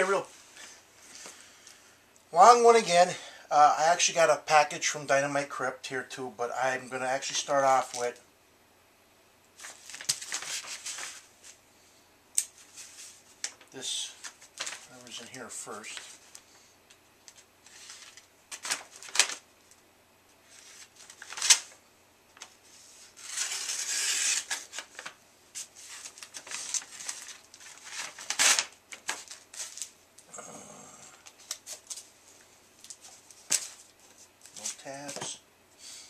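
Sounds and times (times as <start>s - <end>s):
paper ripping: 9.6s - 11.2s, 17.7s - 19.4s, 20.5s - 21.8s, 23.2s - 29.9s
paper rustling and crinkling: 9.6s - 11.6s, 12.6s - 16.4s, 17.3s - 19.4s, 20.4s - 21.8s, 22.4s - 30.0s, 31.2s - 32.1s, 32.8s - 35.4s.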